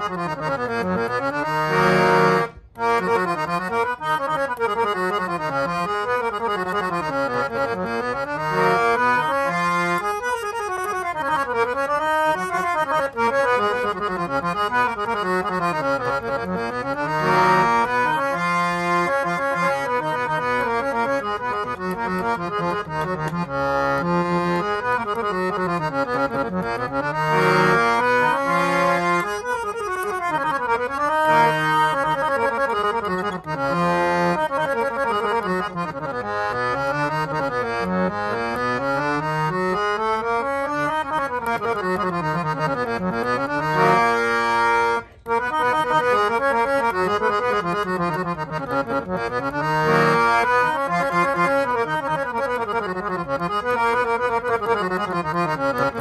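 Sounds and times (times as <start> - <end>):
harmonium playing runs: 0.0 - 56.0.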